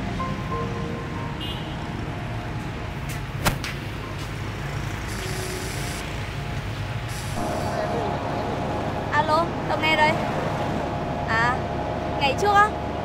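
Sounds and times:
city traffic rumble: 0.0s - 13.0s
sharp crack: 3.4s - 3.8s.

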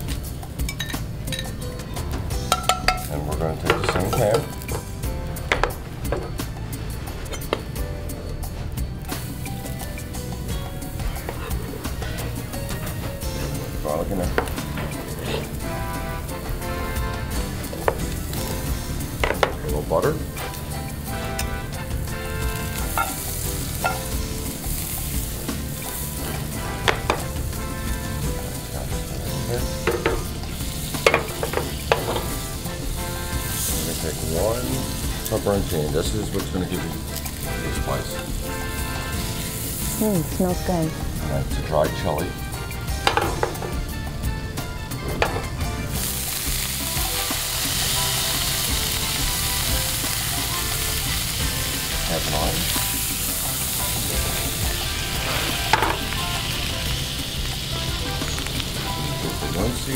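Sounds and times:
garlic and butter sizzling in pan: 0.0s - 59.9s
tongs stirring in pan: 9.1s - 40.8s.

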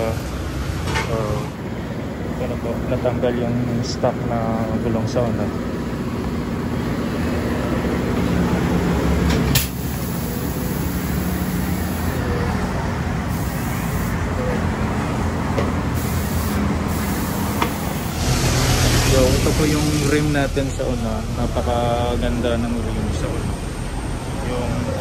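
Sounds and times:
mechanical drone with hiss: 9.5s - 14.8s, 15.9s - 25.0s.

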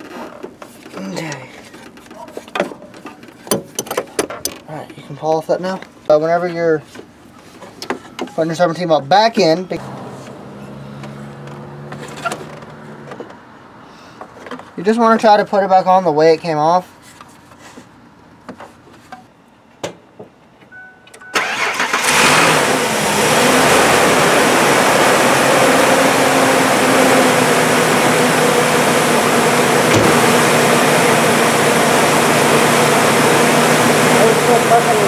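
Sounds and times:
car engine starting and idling: 21.2s - 35.0s.

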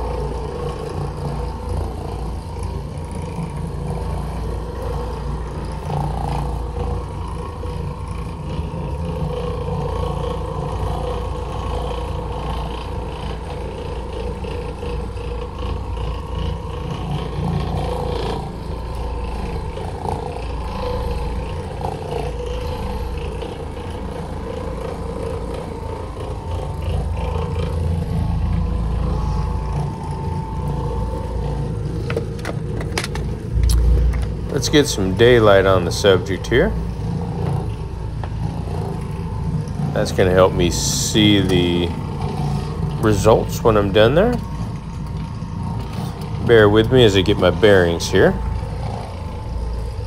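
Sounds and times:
floor machine motor hum: 0.0s - 50.0s.

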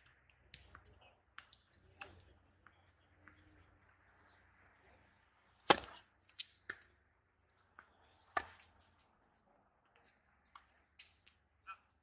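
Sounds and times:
tennis ball pops: 5.6s - 6.9s, 8.4s - 8.8s.

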